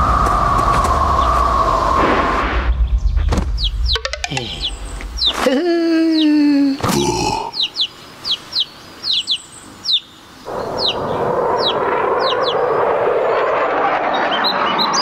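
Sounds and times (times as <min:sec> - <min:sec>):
small bird chirping: 0:02.7 - 0:12.8
steady rushing noise: 0:10.4 - 0:15.0.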